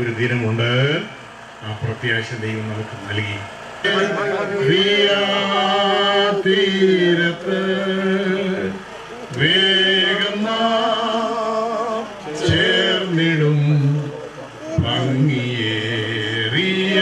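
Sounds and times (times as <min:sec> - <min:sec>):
man singing a hymn: 0:03.8 - 0:17.0.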